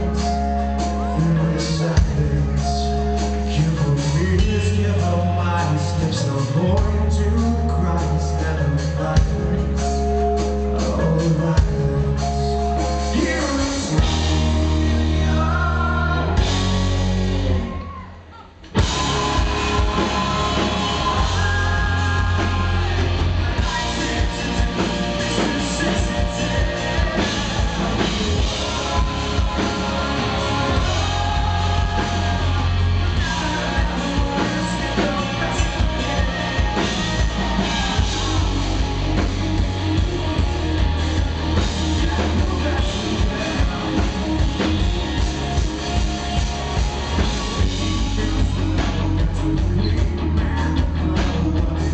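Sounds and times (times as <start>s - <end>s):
man singing: 0.0s - 16.6s, 18.8s - 46.5s, 47.2s - 51.9s
drums: 0.0s - 51.9s
electric guitar: 0.0s - 51.9s.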